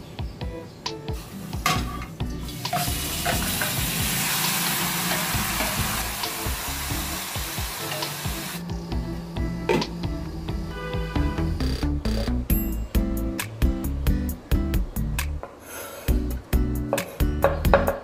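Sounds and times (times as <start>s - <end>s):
meat sizzling in a pot: 1.2s - 8.6s.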